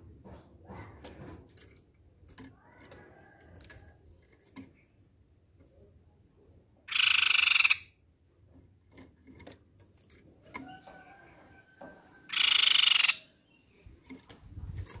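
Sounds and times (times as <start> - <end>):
bird buzzy rattling call: 6.9 - 8.0, 12.3 - 13.6.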